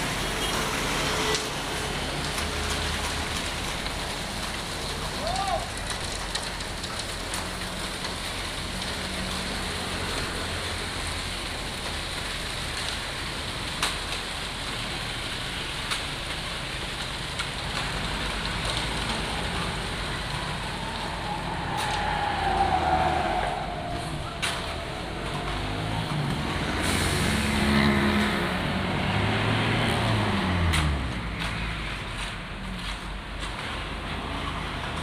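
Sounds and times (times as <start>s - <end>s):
road traffic: 0.0s - 35.0s
vehicle passing by: 19.0s - 35.0s
tools scraping through wet concrete: 29.8s - 35.0s.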